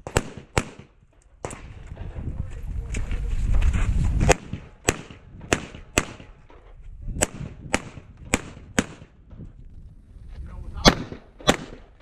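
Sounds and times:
pistol shots with echo: 0:00.0 - 0:01.7, 0:04.3 - 0:06.4, 0:07.2 - 0:09.2, 0:10.8 - 0:12.0.

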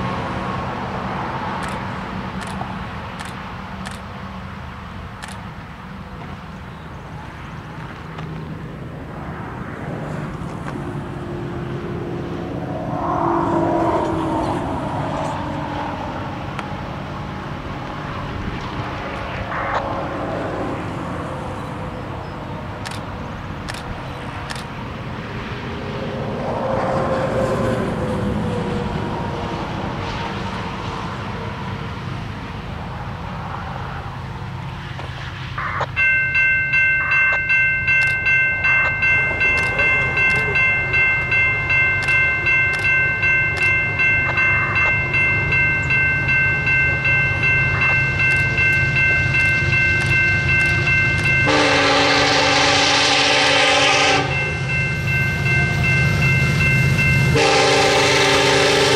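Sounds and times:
diesel locomotives rumbling: 0:00.0 - 0:58.9
locomotive air horn chord: 0:51.3 - 0:54.6, 0:57.3 - 0:58.9.

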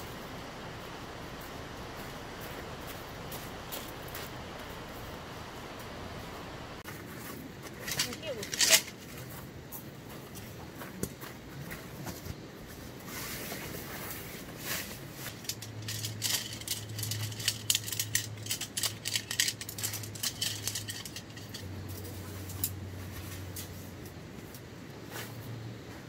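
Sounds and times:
low steady hum: 0:00.0 - 0:26.0
tent poles clicking and clattering: 0:06.8 - 0:25.5
tent fabric rustling: 0:11.7 - 0:24.0.

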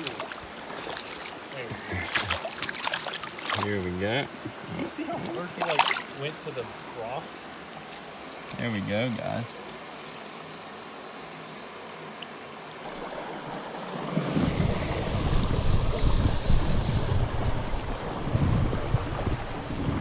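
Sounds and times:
low rumbling of water: 0:00.0 - 0:09.2, 0:12.0 - 0:20.0
creek water flowing: 0:00.0 - 0:20.0
wind noise on microphone: 0:14.1 - 0:20.0.

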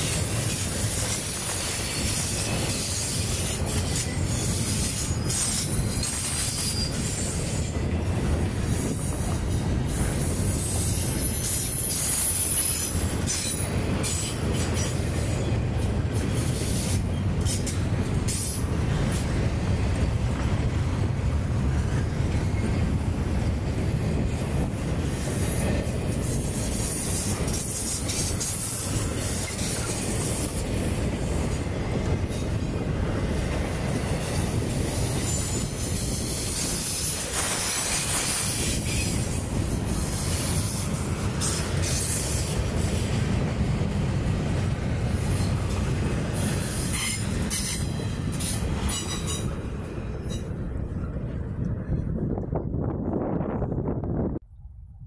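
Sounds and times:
high wheel squeal: 0:00.0 - 0:07.8, 0:08.8 - 0:14.3, 0:46.4 - 0:49.5
train wheels rumbling on rails: 0:00.0 - 0:54.4.

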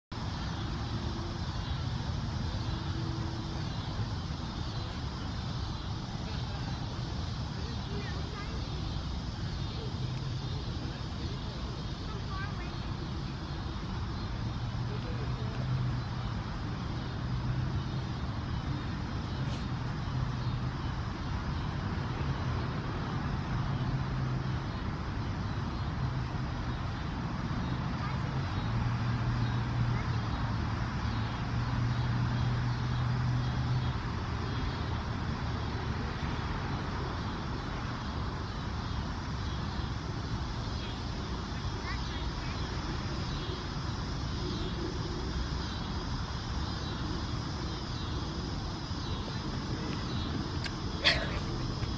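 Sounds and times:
distant traffic rumble: 0:00.1 - 0:51.9
faint wind: 0:00.1 - 0:51.9
low engine hum: 0:00.1 - 0:51.9.

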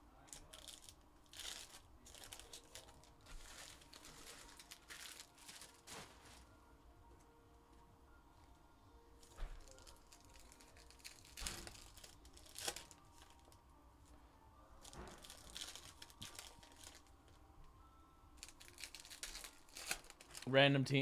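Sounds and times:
foil wrappers crinkling and tearing: 0:00.2 - 0:06.5, 0:09.2 - 0:13.6, 0:14.8 - 0:17.1, 0:18.4 - 0:20.5.

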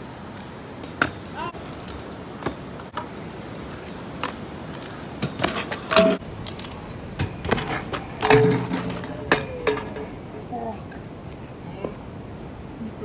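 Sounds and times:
metal scooter clattering on concrete: 0:04.8 - 0:06.7, 0:07.5 - 0:10.2.

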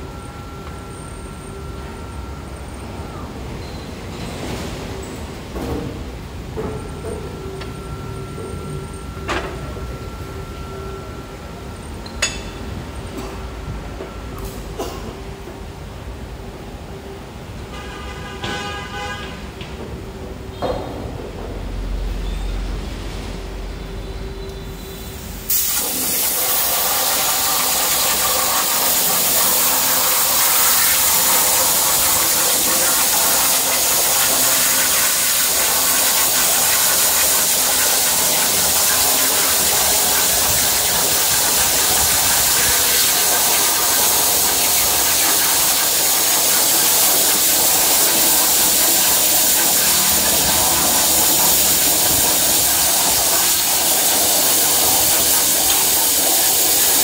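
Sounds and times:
plasma torch hissing: 0:25.0 - 0:57.0
plasma torch striking arc: 0:25.4 - 0:57.0.

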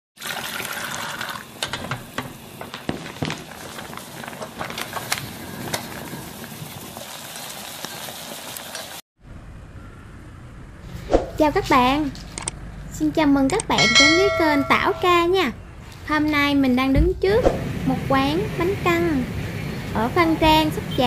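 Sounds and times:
crackling sizzling noise with clicks: 0:01.2 - 0:09.0.

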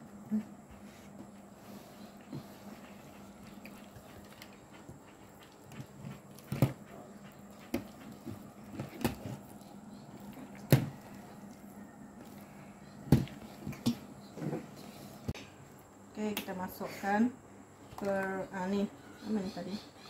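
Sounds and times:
hand squishing through wet batter: 0:07.4 - 0:13.9.

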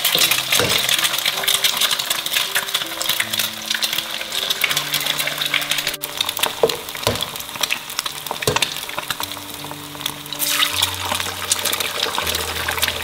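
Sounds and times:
eggs sizzling in hot oil: 0:00.0 - 0:13.0
eggs cracking knocks: 0:00.2 - 0:01.1, 0:06.2 - 0:09.4.

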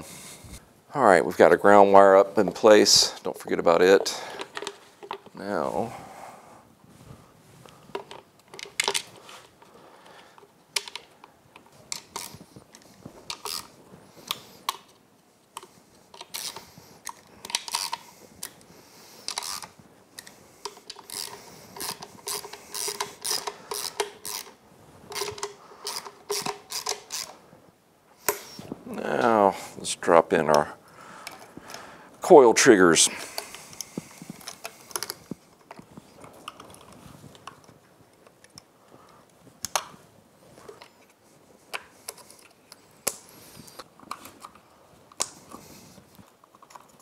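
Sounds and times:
hand ratchet clicking: 0:19.3 - 0:19.7, 0:20.6 - 0:27.4.

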